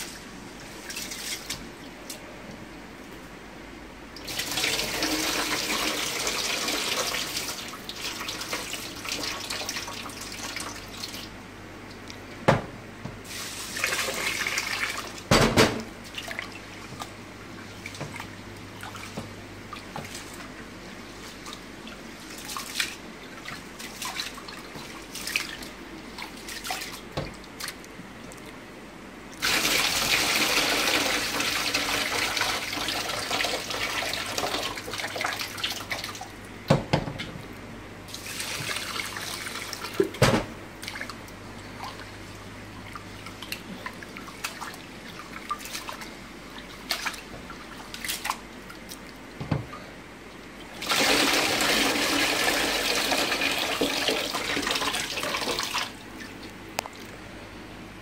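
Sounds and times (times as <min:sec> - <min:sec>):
water pouring: 0:50.7 - 0:56.3.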